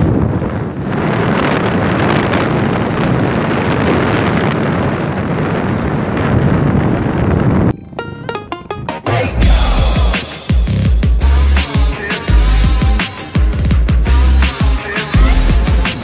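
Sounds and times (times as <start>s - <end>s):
wind buffeting microphone: 0.0s - 8.0s.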